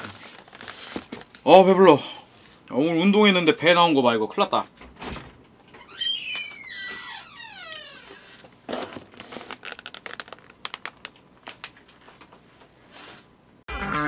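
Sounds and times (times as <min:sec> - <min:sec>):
plastic containers crinkling and clattering: 0:00.0 - 0:01.5, 0:08.1 - 0:12.7.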